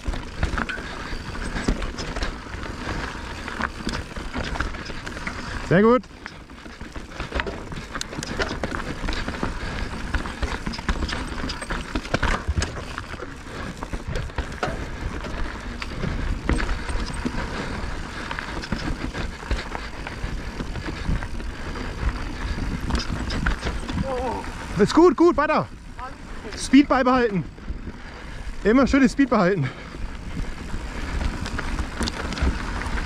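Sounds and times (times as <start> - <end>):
bike rattling over bumps: 0.0 - 33.0
tyres crunching over gravel: 0.0 - 33.0
wind noise on microphone: 7.5 - 24.8.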